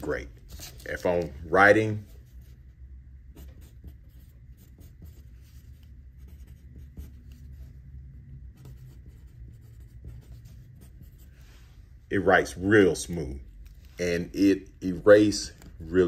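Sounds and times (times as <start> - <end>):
pencil scratching on paper: 0.0 - 1.3, 1.9 - 11.5.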